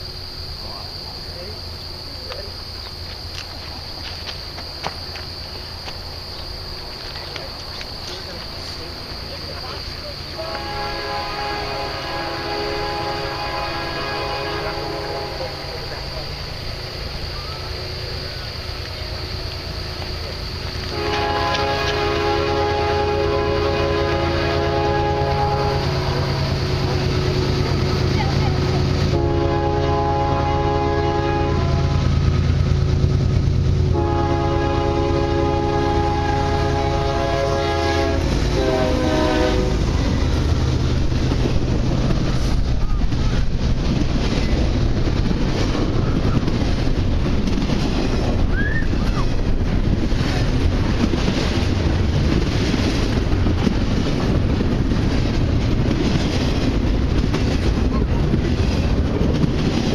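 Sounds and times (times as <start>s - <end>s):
freight cars rumbling and clattering: 0.0s - 10.6s, 25.3s - 29.2s, 39.6s - 59.9s
locomotive engine: 0.0s - 59.9s
locomotive air horn blasts: 10.4s - 15.9s, 20.9s - 26.4s, 29.0s - 32.2s, 33.8s - 39.8s.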